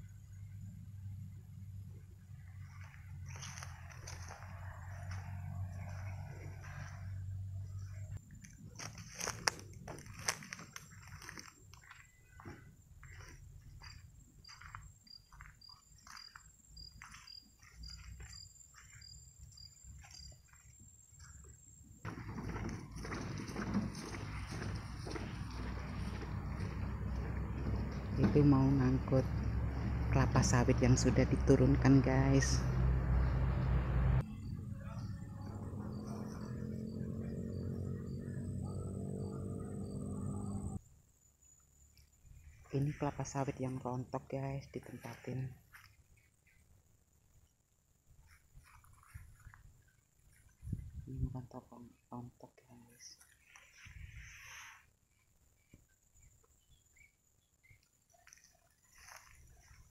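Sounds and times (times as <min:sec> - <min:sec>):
insect chirping: 0:00.0 - 0:28.1, 0:32.3 - 0:51.1, 0:52.8 - 0:59.9
crunching and rustling footsteps: 0:02.3 - 0:30.2, 0:44.7 - 0:46.7, 0:48.2 - 0:51.1, 0:53.1 - 0:54.9, 0:58.1 - 0:59.9
insects trilling: 0:07.6 - 0:27.2.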